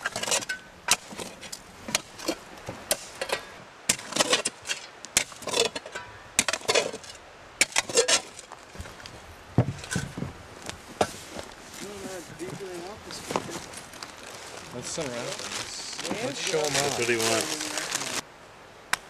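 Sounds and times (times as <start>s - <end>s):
digging tool striking stony dirt: 0.0s - 9.0s.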